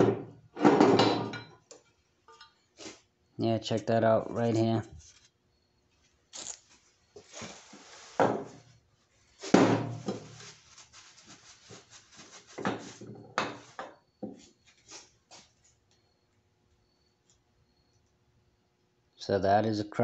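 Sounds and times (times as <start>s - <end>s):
rubbing: 10.3s - 13.0s.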